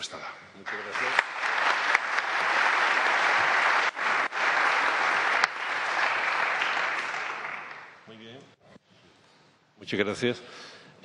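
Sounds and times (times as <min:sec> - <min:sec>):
audience applauding: 0:00.6 - 0:08.0.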